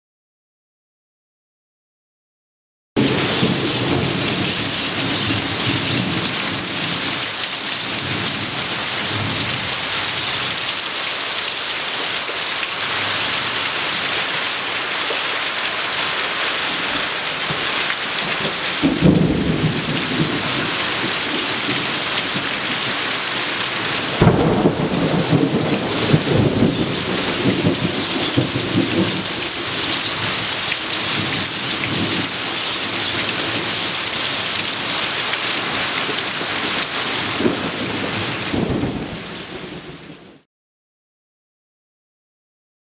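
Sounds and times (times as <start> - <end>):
water pouring off roof: 3.0 - 38.5
heavy rain: 3.0 - 40.4
thunder rumbling: 17.4 - 23.1, 23.9 - 30.5
sharp thunderclap: 18.3 - 22.6, 24.0 - 29.4.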